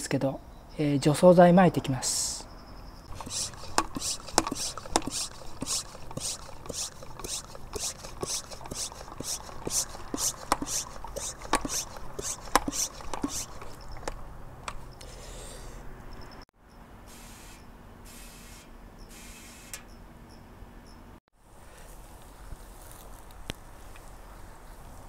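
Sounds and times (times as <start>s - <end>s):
hand pump air hiss: 3.1s - 14.2s, 17.1s - 19.9s.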